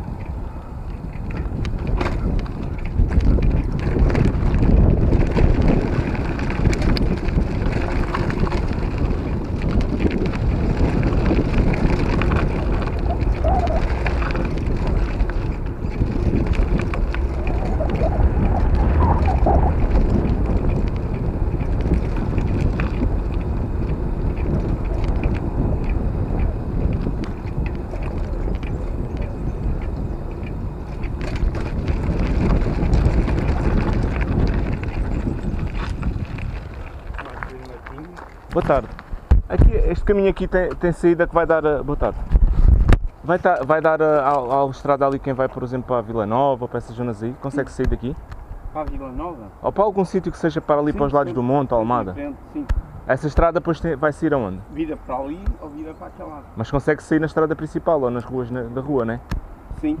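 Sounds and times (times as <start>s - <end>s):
bicycle rattling over bumps: 0.0s - 60.0s
wind buffeting microphone: 0.0s - 60.0s
tyres crunching on gravel: 1.2s - 42.1s.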